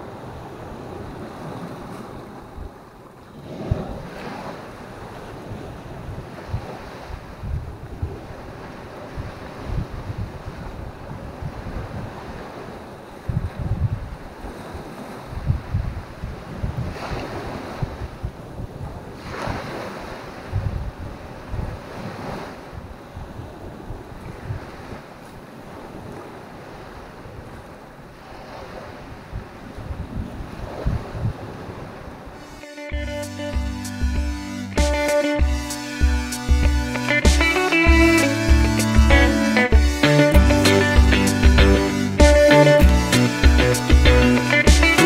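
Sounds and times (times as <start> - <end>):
wind gusting on microphone: 0.0 - 25.1, 28.4 - 32.4
small waves washing ashore: 0.0 - 32.8.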